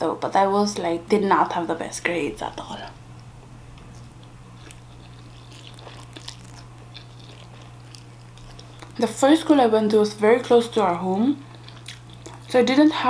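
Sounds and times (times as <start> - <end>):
low hum: 0.6 - 12.6
person chewing noodles: 3.7 - 9.0, 11.4 - 12.5.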